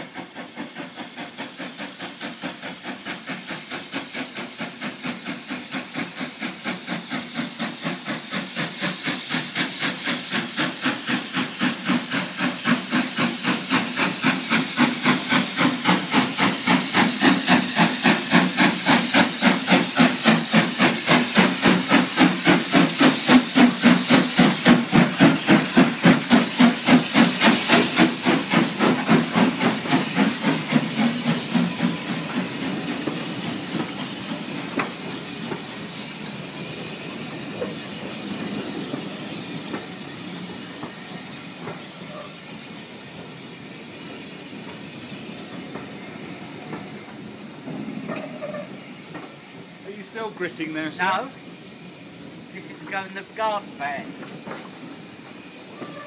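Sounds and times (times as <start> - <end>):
steam hissing: 0.0 - 56.0
steam locomotive chuffing: 0.0 - 56.0.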